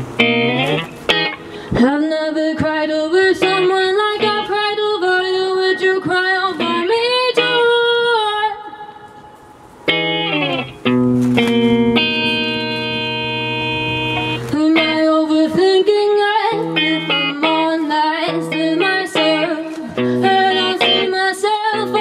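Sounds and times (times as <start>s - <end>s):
guitar chords: 0.0s - 22.0s
sliding held melody line: 9.9s - 15.8s.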